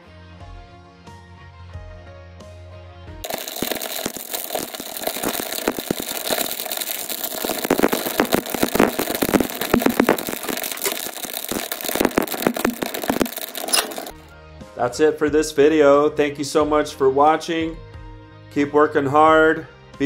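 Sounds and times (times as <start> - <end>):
fire crackling and popping: 3.2 - 14.2.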